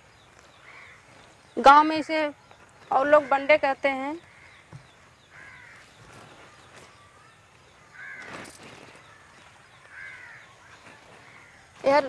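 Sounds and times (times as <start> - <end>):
crow cawing: 0.6 - 1.1, 4.2 - 6.0, 7.2 - 11.8.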